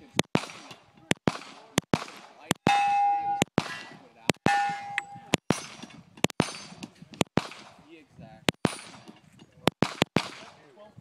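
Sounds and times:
handgun shots: 0.2 - 7.8, 8.6 - 10.6
steel plate ringing: 2.6 - 3.5, 4.4 - 6.8
bullets clanging on steel: 2.6 - 7.3, 8.6 - 10.5.

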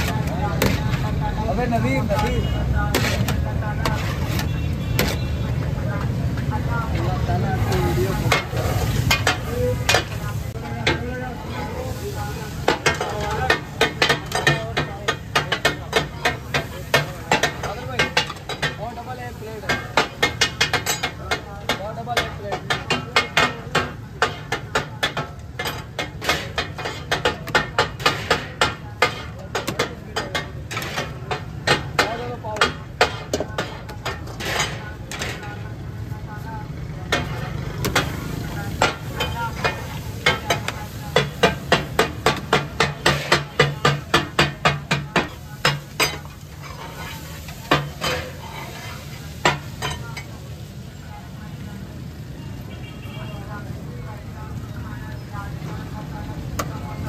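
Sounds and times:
frying sizzle: 0.0 - 52.9, 53.5 - 57.0
metal spatulas clacking on griddle: 7.6 - 11.3, 12.6 - 35.6, 37.0 - 50.4.

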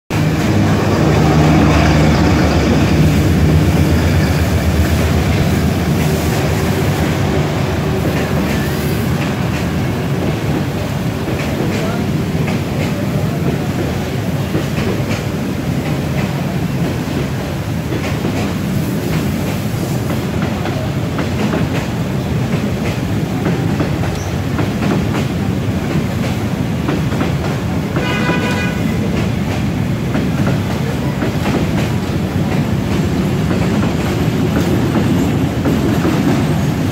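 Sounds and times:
locomotive engine: 0.1 - 10.1
train carriages rumbling: 0.1 - 36.9.

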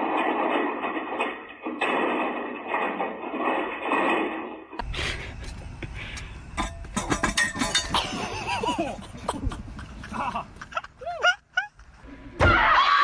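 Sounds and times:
feet clinking on steel bollard: 5.4 - 9.0.

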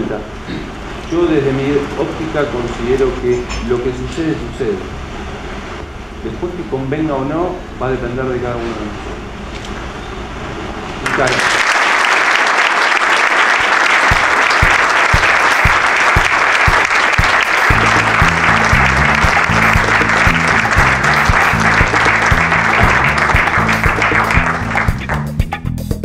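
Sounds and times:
audience applauding: 11.0 - 25.4
steady drum beat: 13.9 - 26.0
bass line: 14.1 - 26.0.

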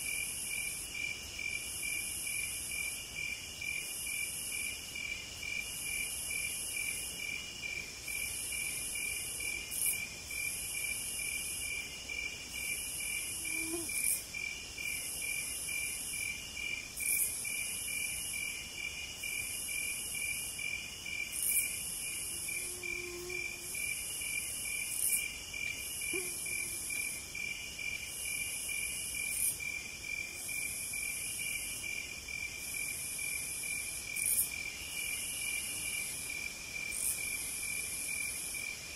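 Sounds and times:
insects trilling: 8.1 - 18.6, 21.3 - 32.0
insect buzzing in phrases: 13.3 - 14.1, 22.5 - 23.8, 26.0 - 27.0.

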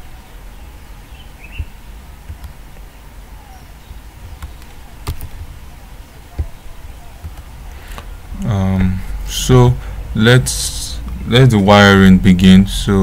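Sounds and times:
low steady hum: 0.0 - 13.0
mouse and keyboard clicks: 4.2 - 5.5.

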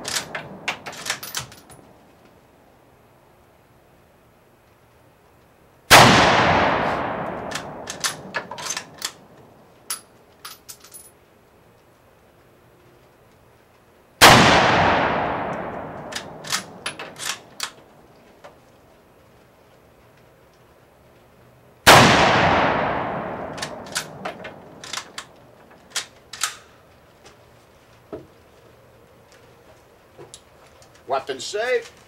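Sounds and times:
rifle bolt metallic clicks: 0.0 - 1.9, 6.6 - 11.1, 15.2 - 17.9, 22.5 - 26.7
rifle shots echoing: 0.0 - 1.9, 5.9 - 9.4, 14.2 - 18.0, 21.9 - 25.6.

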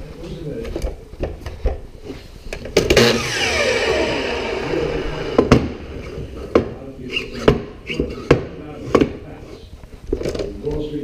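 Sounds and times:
miter saw blade whine: 3.0 - 6.1
sharp knocks: 5.3 - 5.9.

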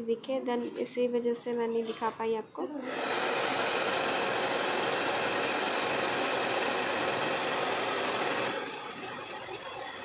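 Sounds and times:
hair dryer running: 2.8 - 10.0.

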